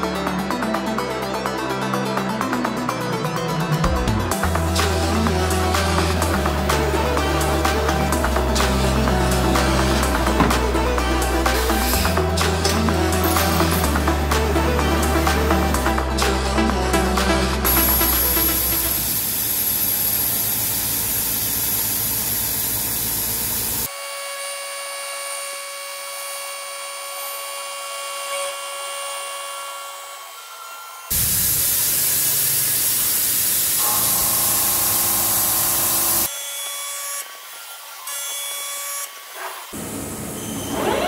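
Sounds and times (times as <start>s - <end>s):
machine high whine: 3.0s - 41.0s
hiss of cutting and spray: 17.7s - 23.9s, 31.1s - 38.2s.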